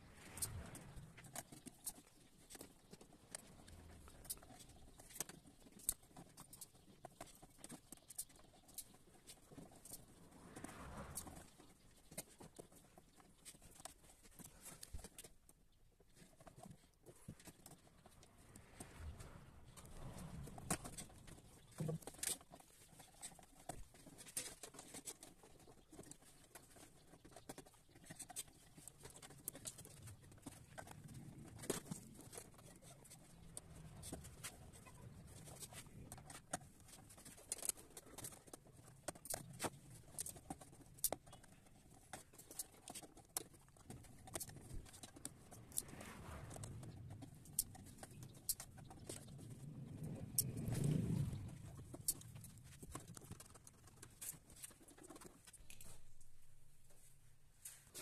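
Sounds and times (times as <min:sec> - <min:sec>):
wires clicking and rustling: 0:00.0 - 0:58.0.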